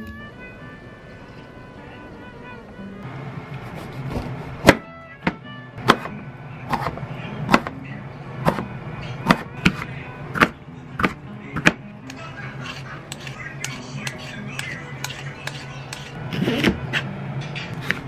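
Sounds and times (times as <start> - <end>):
soft background music: 0.0 - 3.1
knife chopping on cutting board: 3.7 - 6.1, 6.7 - 7.7, 8.4 - 11.8, 17.8 - 18.0.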